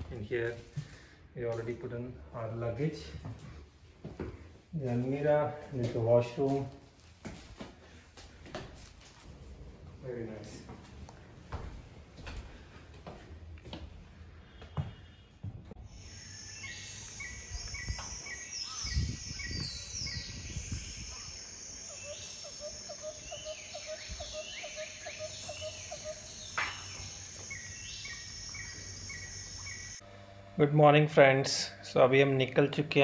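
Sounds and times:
wild birds chirping and calling: 0:15.9 - 0:30.0.

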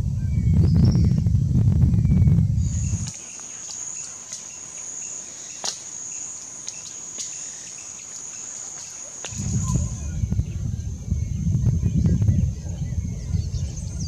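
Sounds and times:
low rumbling noise: 0:00.0 - 0:03.3, 0:09.2 - 0:14.0
high-pitched insect trill: 0:02.0 - 0:14.0.

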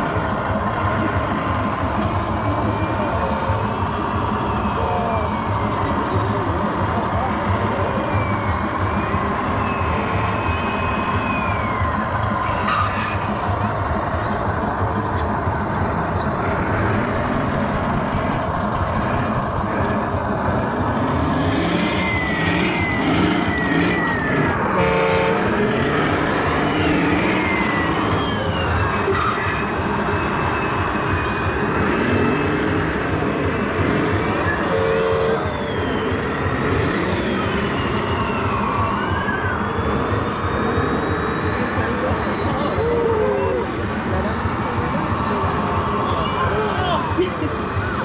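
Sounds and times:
faint rising and falling siren tone: 0:00.0 - 0:15.0, 0:16.7 - 0:48.0
hall rumble and hubbub: 0:00.0 - 0:48.0
horn-like blast: 0:24.8 - 0:25.6.

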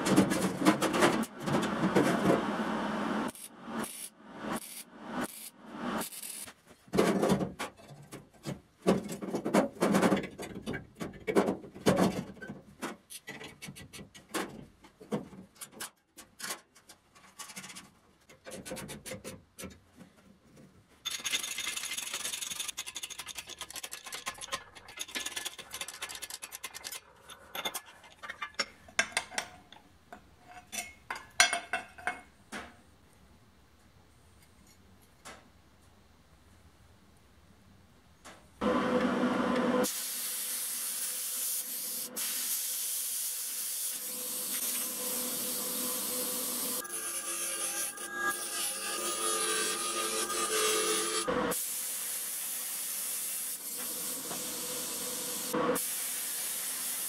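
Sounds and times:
steel parts knocking and clinking: 0:21.1 - 0:32.7.

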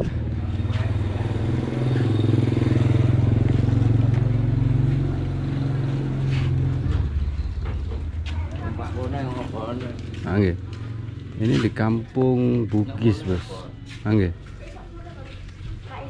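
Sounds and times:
vehicle engine running: 0:00.0 - 0:13.5.

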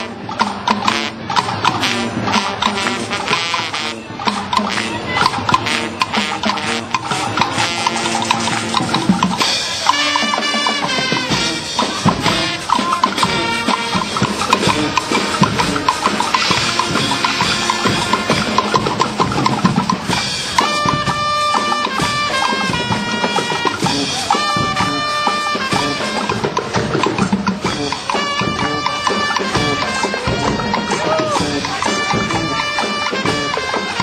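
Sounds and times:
drum beat and percussion: 0:00.0 - 0:34.0
held notes: 0:00.0 - 0:34.0.

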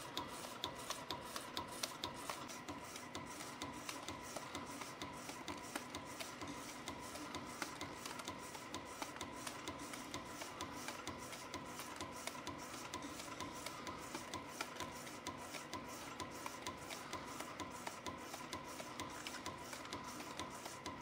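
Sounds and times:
steady mechanical hum: 0:00.0 - 0:21.0.

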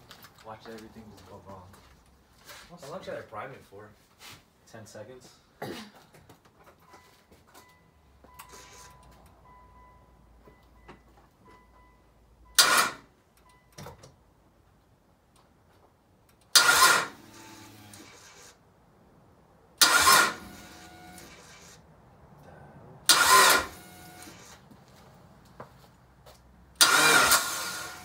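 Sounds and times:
starter motor cranking engine: 0:12.6 - 0:13.0, 0:16.5 - 0:18.5, 0:19.8 - 0:21.8, 0:23.1 - 0:24.6, 0:26.8 - 0:28.0.

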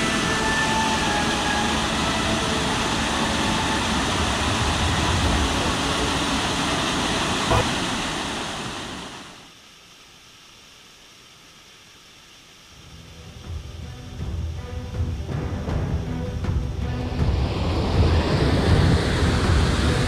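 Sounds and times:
waterfall rushing: 0:00.0 - 0:09.5.

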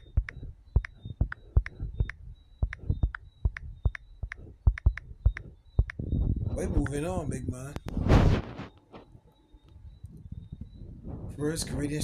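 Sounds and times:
fingertips tapping touchscreen: 0:00.0 - 0:06.0, 0:06.6 - 0:07.2.

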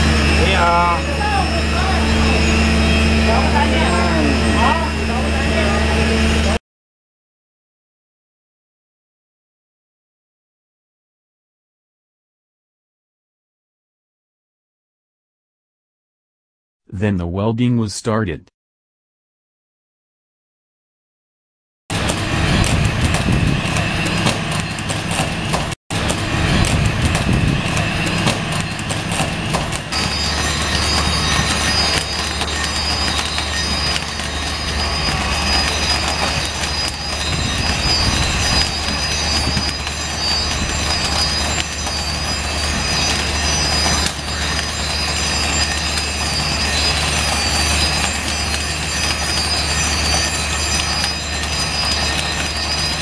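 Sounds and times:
high whine: 0:00.0 - 0:06.6, 0:21.9 - 0:53.0
low hum: 0:00.0 - 0:06.6
welding arc crackling: 0:21.9 - 0:53.0.

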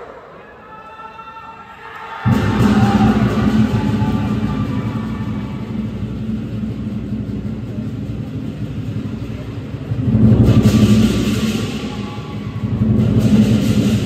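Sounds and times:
cymbals crashing: 0:02.2 - 0:14.0
drum rolling low and fast: 0:02.3 - 0:14.0.

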